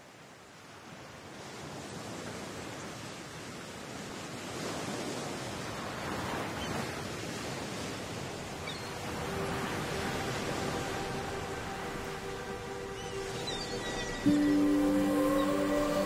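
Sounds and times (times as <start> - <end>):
ocean surf washing up beach: 0.0 - 16.0
faint music tones: 8.8 - 16.0.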